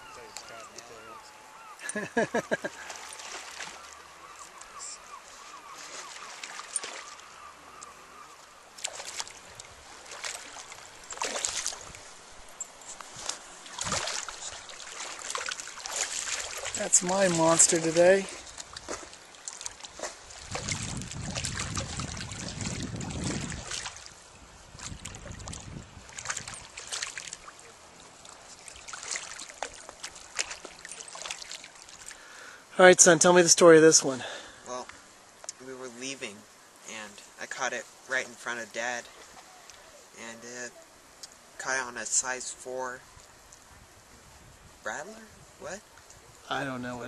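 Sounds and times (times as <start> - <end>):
fish splashing in water: 2.8 - 4.0, 5.9 - 7.2, 8.8 - 12.0, 13.3 - 24.2, 24.8 - 32.2.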